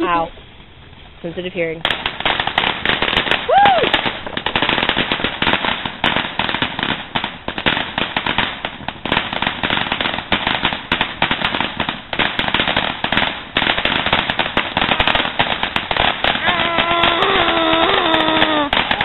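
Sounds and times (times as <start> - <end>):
firework crackling: 0.0 - 19.0.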